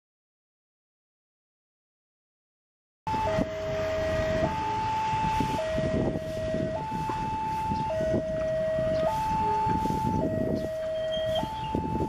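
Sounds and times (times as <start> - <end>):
two-tone level crossing alarm: 3.1 - 12.0.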